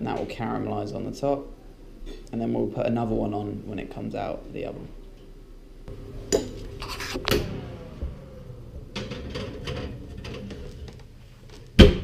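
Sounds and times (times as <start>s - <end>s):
faint steady hum: 0.0s - 12.0s
dish clinking and scraping on rack: 6.3s - 7.0s, 9.0s - 11.0s.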